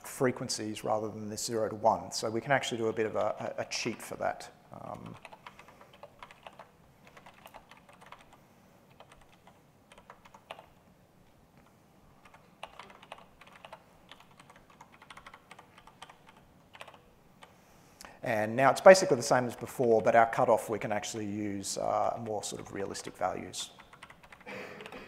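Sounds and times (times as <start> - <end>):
faint keyboard typing: 2.7 - 17.6, 22.0 - 25.0.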